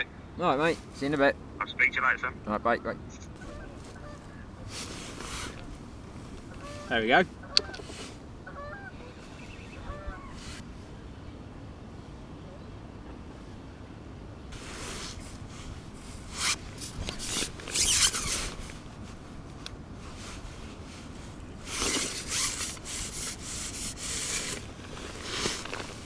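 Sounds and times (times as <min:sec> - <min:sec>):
fishing reel rasping: 0:21.7 - 0:24.6.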